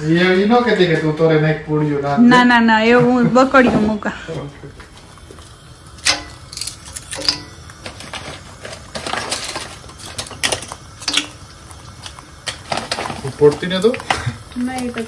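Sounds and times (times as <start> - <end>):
dishes and utensils clattering: 6.0 - 15.0.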